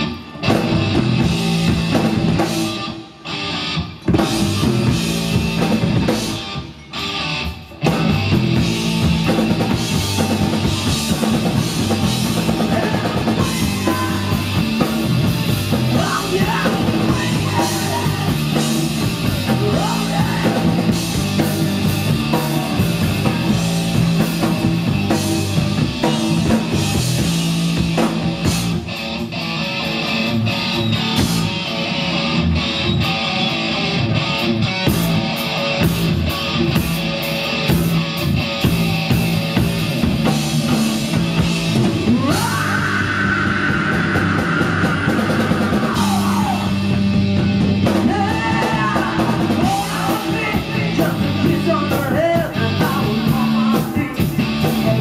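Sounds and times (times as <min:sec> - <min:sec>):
bass guitar: 0:00.0 - 0:55.0
distorted electric guitar: 0:00.0 - 0:55.0
drum kit with cymbals and snare: 0:00.0 - 0:55.0
woman singing lead vocal: 0:15.9 - 0:18.6, 0:48.0 - 0:55.0.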